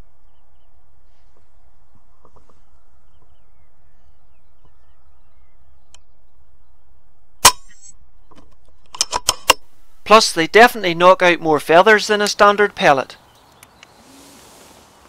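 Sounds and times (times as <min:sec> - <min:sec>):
air rifle shot: 0:07.4 - 0:07.8.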